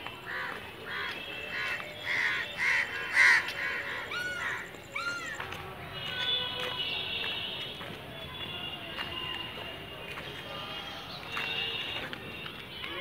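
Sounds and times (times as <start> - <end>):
crows cawing: 0.3 - 5.4.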